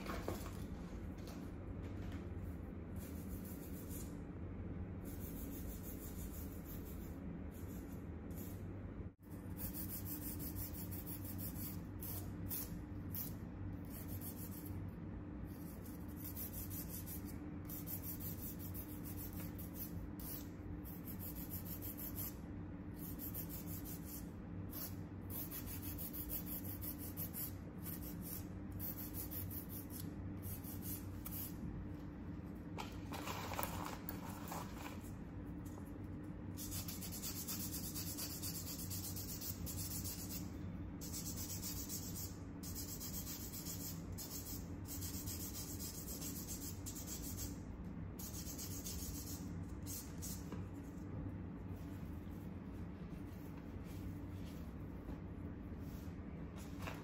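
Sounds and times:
steady low hum: 0.0 - 57.0
nail file rasping on fingernails: 5.0 - 8.6, 9.4 - 14.8, 15.5 - 22.4, 23.0 - 31.6, 36.6 - 47.6, 48.2 - 50.5.

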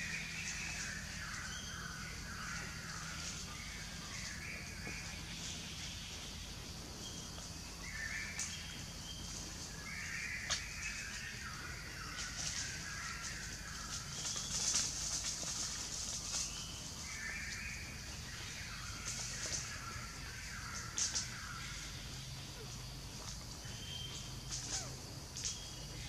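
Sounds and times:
steady high hiss: 0.0 - 26.0.

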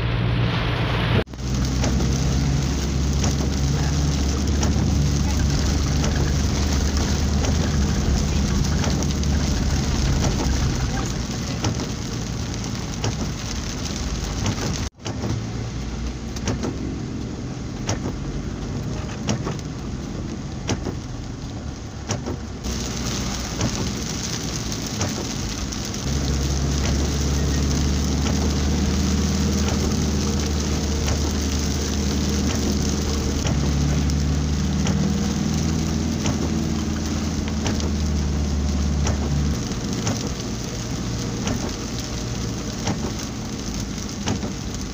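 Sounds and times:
engine drone: 0.0 - 12.6
heavy rain on vehicle roof: 0.0 - 44.9.

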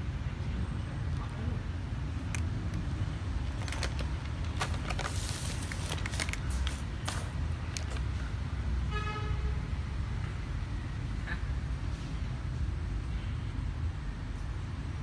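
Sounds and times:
cat crunching dry kibble: 2.3 - 8.1.

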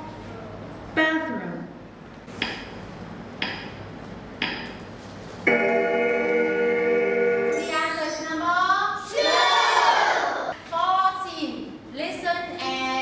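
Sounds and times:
children calling out: 9.0 - 10.6.

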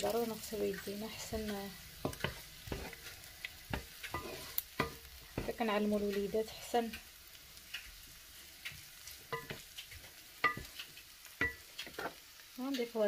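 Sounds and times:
onion sizzling in oil: 0.0 - 13.0
spatula knocking and scraping pot: 0.7 - 7.1, 8.7 - 12.3.

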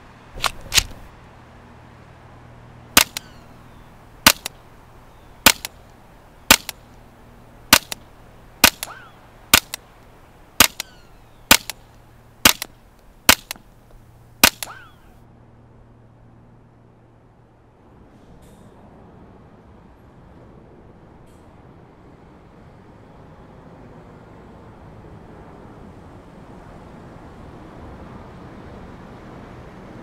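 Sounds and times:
suppressed rifle shots: 0.4 - 1.1, 3.0 - 3.4, 4.2 - 4.6, 5.4 - 5.8, 6.5 - 6.9, 7.7 - 9.8, 10.6 - 12.7, 13.3 - 13.6, 14.4 - 14.9
faint echoing second crack: 3.0 - 3.4, 7.7 - 9.8.

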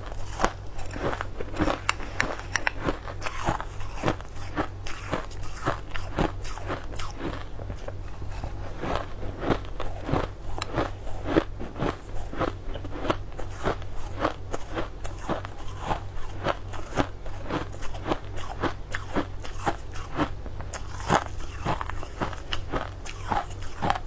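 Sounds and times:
ice crunching in the mouth: 0.1 - 24.0.

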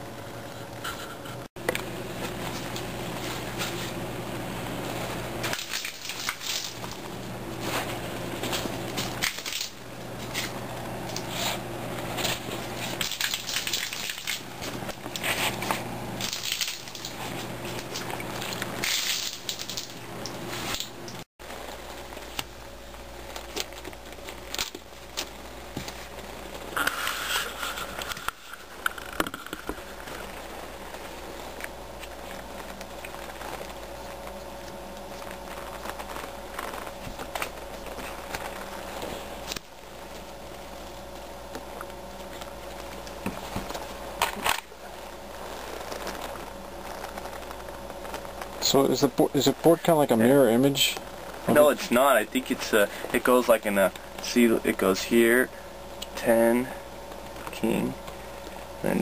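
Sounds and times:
low steady hum: 0.0 - 59.0
playing cards rustling: 1.7 - 59.0
short rustling scrapes: 25.9 - 28.7.

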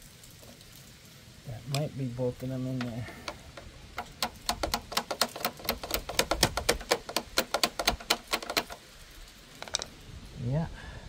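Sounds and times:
ratchet wrench clicking: 3.2 - 8.8, 9.6 - 9.9.

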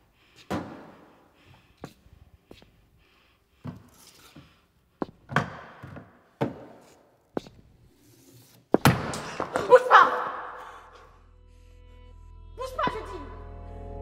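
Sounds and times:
boot footsteps on hard floor: 3.6 - 7.8.

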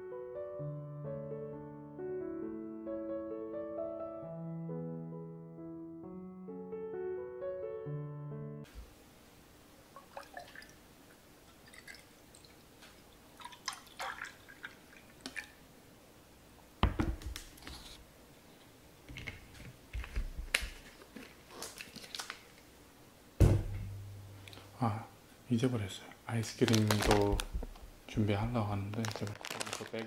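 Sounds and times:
juice pouring into a glass: 10.0 - 10.8, 11.5 - 12.6
bottle thud on table: 23.4 - 24.1.

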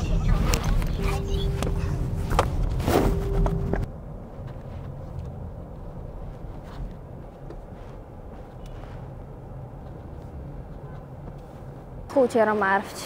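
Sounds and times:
steady tone: 0.0 - 4.4
low rumble of traffic: 0.0 - 13.0.

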